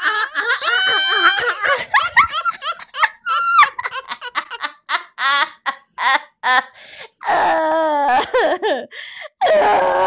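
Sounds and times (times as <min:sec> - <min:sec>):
person laughing: 0:00.0 - 0:06.7
wavering voiced cry: 0:00.6 - 0:01.7.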